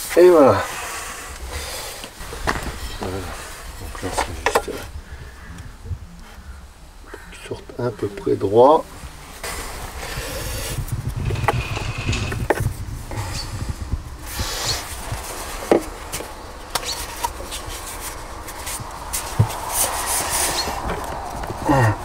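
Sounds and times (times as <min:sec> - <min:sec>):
plastic pipe knocking and rubbing: 0:11.0 - 0:12.8, 0:14.3 - 0:17.6.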